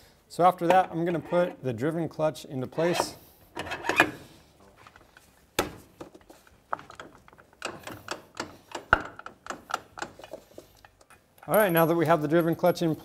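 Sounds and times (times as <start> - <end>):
metal clicks and clunks: 0.6 - 1.3, 6.7 - 11.8.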